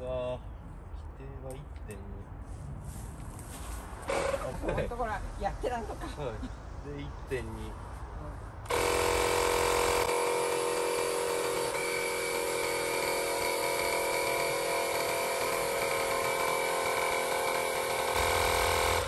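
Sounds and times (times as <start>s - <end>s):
tyre inflator compressor pumping: 8.7s - 19.0s.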